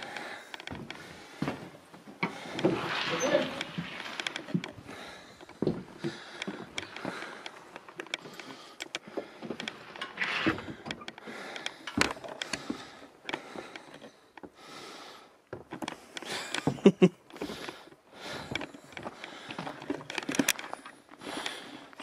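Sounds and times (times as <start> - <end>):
footsteps: 0.0 - 13.7
handling clicks and knocks: 18.5 - 21.2.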